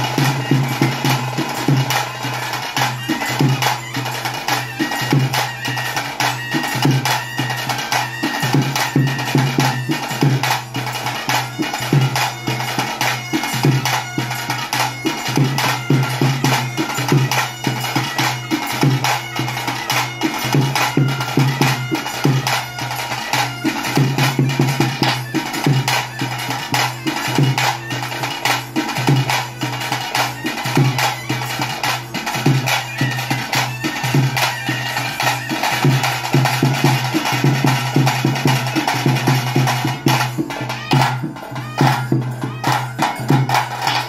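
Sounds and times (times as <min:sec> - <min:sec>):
fast drumming: 0:00.0 - 0:44.0
reedy wind instrument melody: 0:00.0 - 0:44.0.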